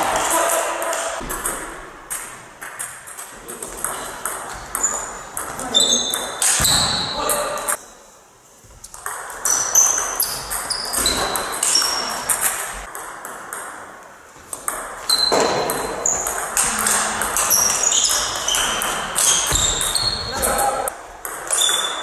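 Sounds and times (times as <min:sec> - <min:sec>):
table tennis ball hits: 0:00.0 - 0:07.1, 0:08.9 - 0:13.9, 0:14.5 - 0:20.6, 0:21.2 - 0:22.0.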